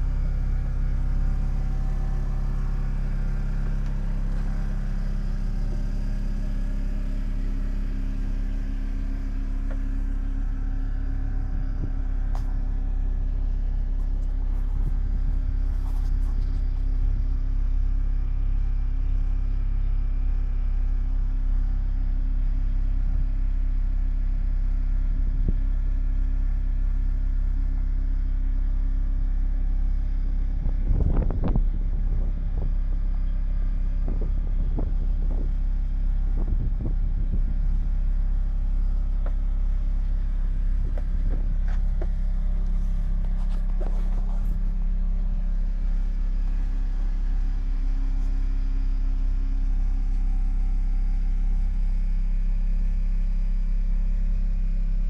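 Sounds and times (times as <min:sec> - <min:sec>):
boat engine rumbling: 0:00.0 - 0:18.1, 0:30.7 - 0:51.1.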